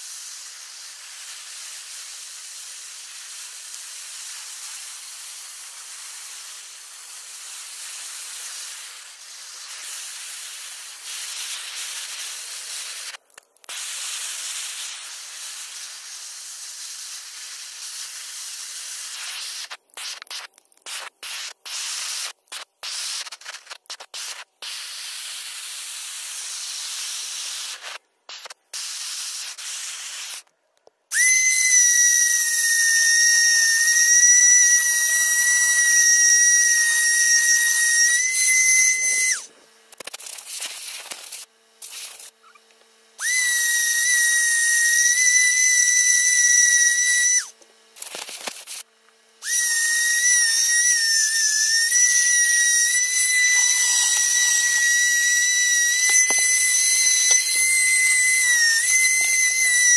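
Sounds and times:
rotary carving tool whining: 31.1s - 40.0s, 42.2s - 59.9s.

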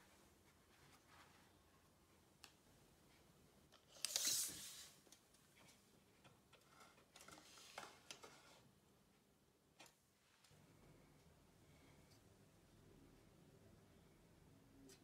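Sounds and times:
tape measure clicks and scrapes: 3.9s - 4.7s.

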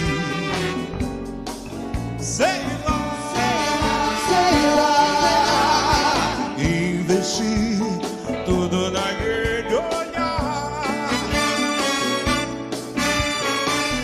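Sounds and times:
big band playing: 0.0s - 14.0s
steady drum beat: 0.0s - 14.0s
person singing with vibrato: 2.2s - 12.2s.

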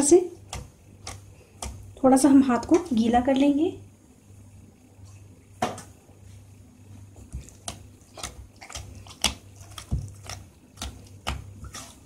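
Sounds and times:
dough squelching and slapping: 0.0s - 3.4s, 6.9s - 12.0s.

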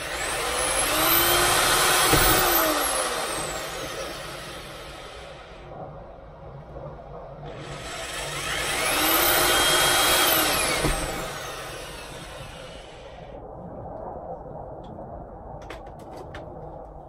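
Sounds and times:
electric drill motor whining: 0.0s - 5.6s, 7.5s - 13.4s.

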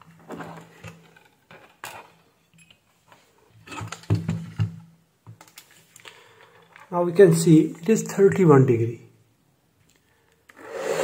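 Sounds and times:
clicks and knocks of handling: 0.2s - 6.9s.

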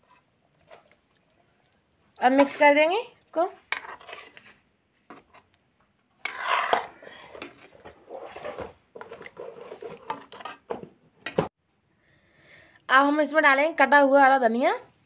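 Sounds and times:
metal spoon scraping pan: 2.2s - 2.8s, 3.5s - 5.6s, 6.2s - 10.8s.

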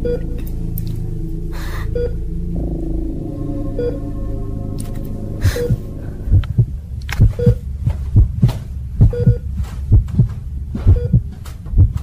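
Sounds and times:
steady low drone: 0.0s - 12.0s
heartbeat thumps: 5.4s - 12.0s.

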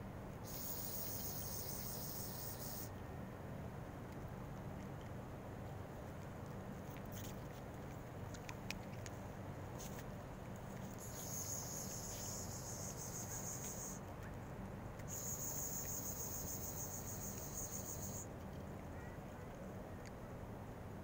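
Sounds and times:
insect trilling: 0.4s - 2.9s, 11.0s - 14.0s, 15.1s - 18.3s.

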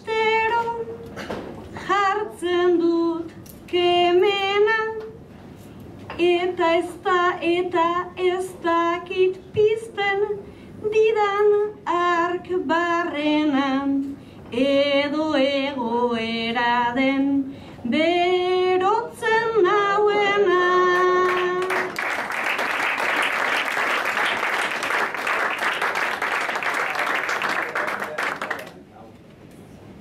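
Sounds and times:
woman singing unaccompanied: 0.0s - 1.0s, 1.8s - 5.2s, 6.2s - 22.0s.

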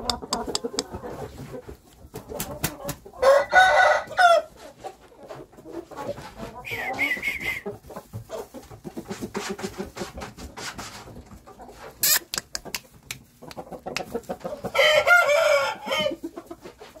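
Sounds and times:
chickens clucking: 0.0s - 17.0s
rooster crowing: 3.2s - 4.5s, 14.8s - 16.2s
sharp click: 12.0s - 12.9s.

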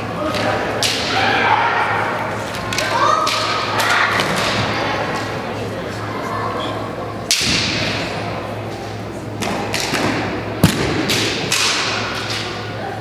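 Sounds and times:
bamboo swords clacking: 11.0s - 12.6s.

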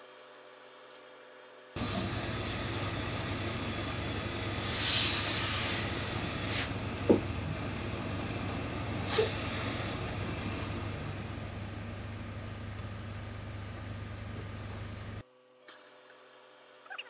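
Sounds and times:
steam iron hissing: 1.8s - 11.4s
low hum: 1.8s - 15.2s.

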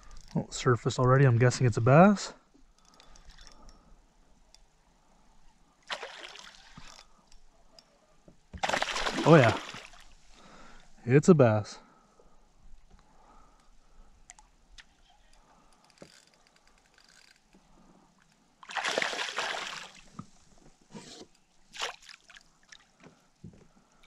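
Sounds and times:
fish splashing in water: 5.9s - 6.8s, 8.6s - 10.1s, 18.7s - 20.0s.

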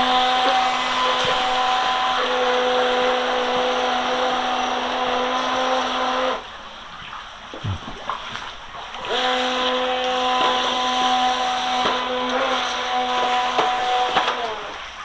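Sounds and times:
electric water-jet drive whining: 0.0s - 6.6s, 9.0s - 15.0s
water rushing around hull: 0.0s - 15.0s.

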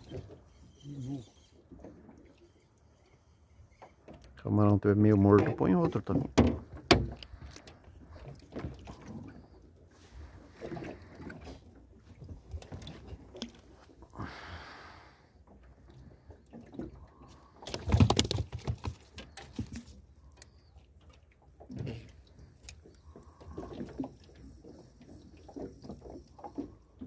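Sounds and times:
knocks in aluminium boat: 5.4s - 7.2s.

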